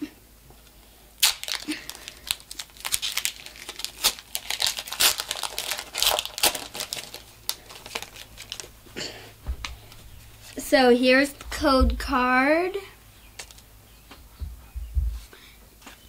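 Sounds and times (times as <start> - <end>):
foil wrapper crinkling: 1.2 - 8.9.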